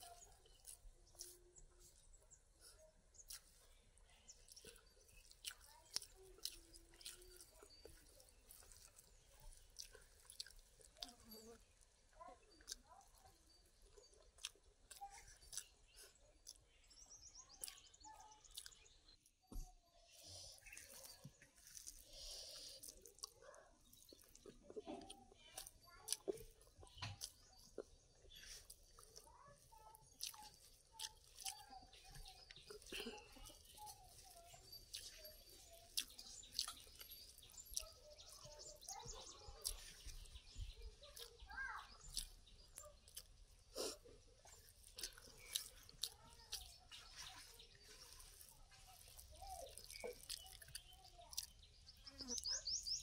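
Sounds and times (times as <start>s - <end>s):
fingers mashing soft food: 0.0s - 11.8s, 20.4s - 53.0s
chewing with wet mouth clicks: 0.0s - 19.4s, 20.5s - 53.0s
bird chirping: 12.6s - 24.8s, 25.6s - 53.0s.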